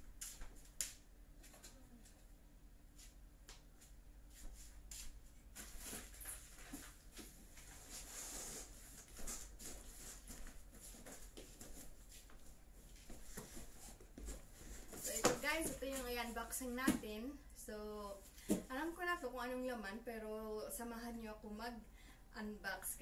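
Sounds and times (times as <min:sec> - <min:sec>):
footsteps: 0:03.0 - 0:17.0.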